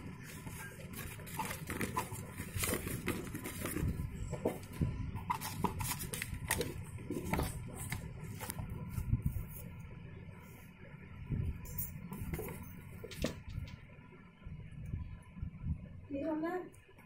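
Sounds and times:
cardboard box rustling and scraping: 0.2s - 8.7s.

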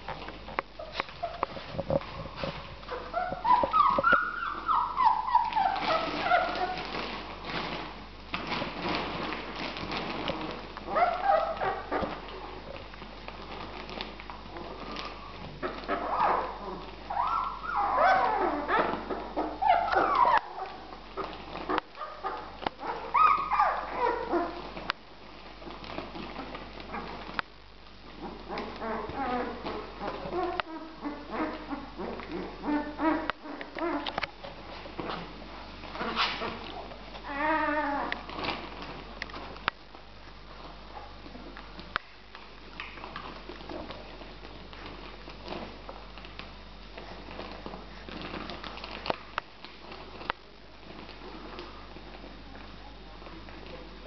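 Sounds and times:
puppies whining squeals: 2.9s - 7.0s, 15.9s - 20.9s, 22.3s - 24.7s, 37.2s - 38.4s.

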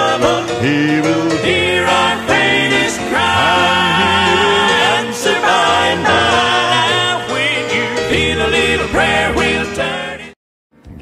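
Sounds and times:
instrumental backing: 0.0s - 10.2s
gospel group singing: 0.0s - 10.4s.

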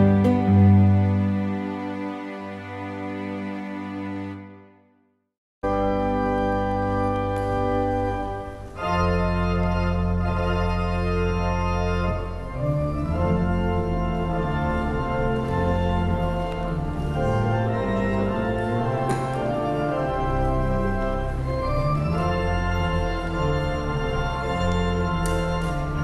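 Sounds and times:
slow organ chords: 5.6s - 26.0s.

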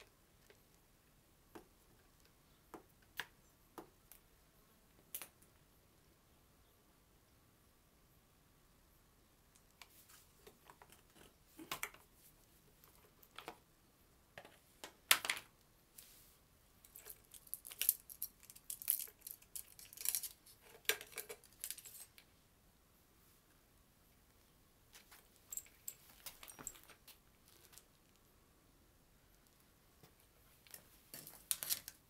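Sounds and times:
metal parts clicking and scraping: 16.8s - 22.2s.

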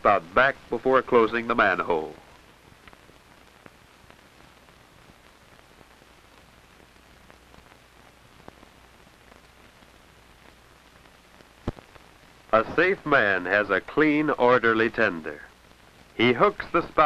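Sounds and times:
faint film hiss: 0.0s - 17.0s
clicks and pops: 2.7s - 4.2s, 8.4s - 12.1s.

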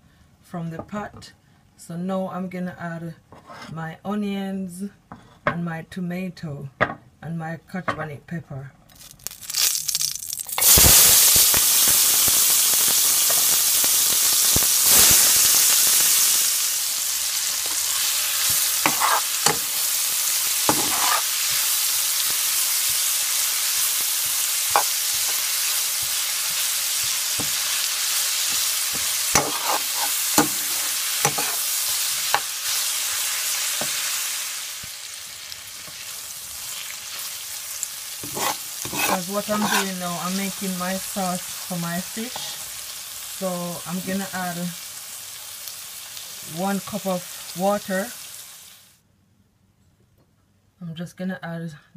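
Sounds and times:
metal spoon scraping a pot: 3.3s - 3.8s, 17.6s - 19.8s, 20.7s - 21.7s, 28.5s - 31.7s, 38.2s - 40.0s
vegetables sizzling in hot oil: 9.0s - 49.0s.

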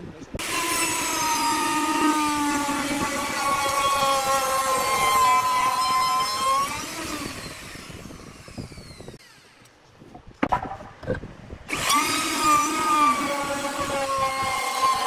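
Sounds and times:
electric router motor: 0.4s - 9.7s, 11.7s - 15.0s
wooden knocks: 10.4s - 11.2s.

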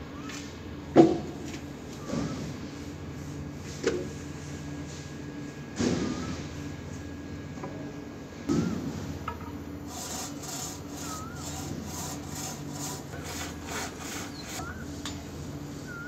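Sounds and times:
steady low hum: 0.0s - 16.0s
wood being sawn by hand: 9.8s - 14.7s
bird chirps: 14.3s - 15.0s.

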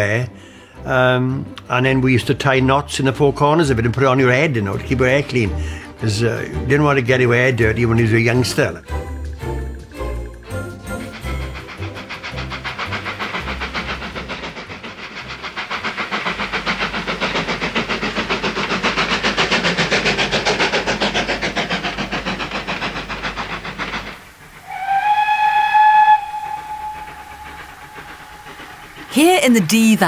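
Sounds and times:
steam locomotive exhaust beats: 0.0s - 30.0s
steam whistle blast: 24.6s - 29.1s.

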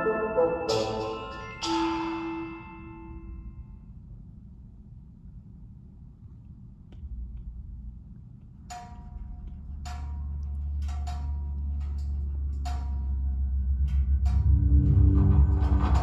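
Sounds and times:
sharp ringing hits: 0.0s - 3.5s
deep low drone: 9.2s - 16.0s.

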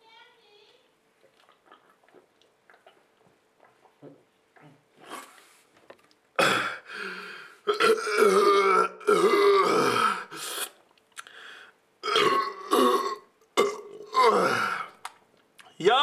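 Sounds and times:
man belching: 6.4s - 6.9s, 7.7s - 10.6s, 12.0s - 15.0s.

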